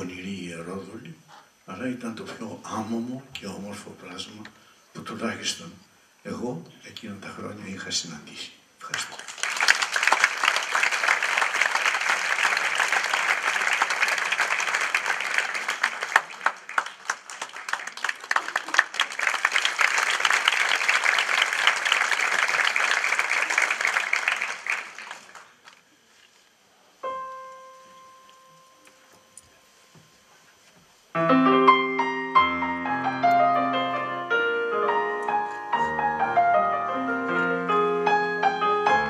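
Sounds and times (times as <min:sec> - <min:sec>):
audience applauding: 0:08.8 - 0:25.9
electric piano note: 0:31.2 - 0:39.0.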